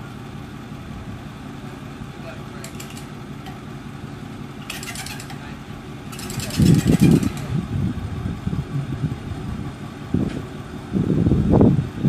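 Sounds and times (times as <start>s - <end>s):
truck engine idling: 0.0s - 12.0s
rapid clicking rattle: 2.6s - 3.6s, 4.6s - 7.6s.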